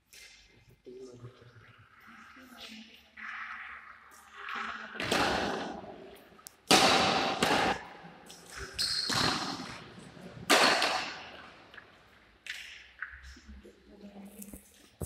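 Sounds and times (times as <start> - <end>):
shuttlecock hits echoing: 6.6 - 9.8, 10.4 - 12.8.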